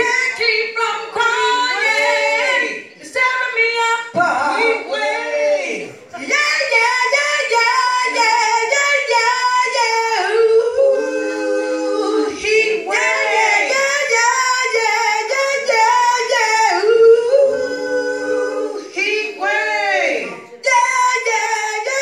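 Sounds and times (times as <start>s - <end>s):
woman singing into a microphone: 6.1s - 13.0s, 13.7s - 22.0s.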